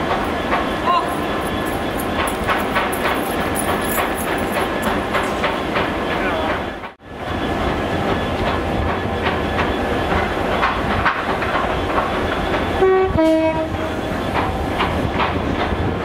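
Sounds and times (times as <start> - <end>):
train wheels clicking over rail joints: 0.0 - 7.0, 8.0 - 16.0
two-note train horn: 12.8 - 13.9.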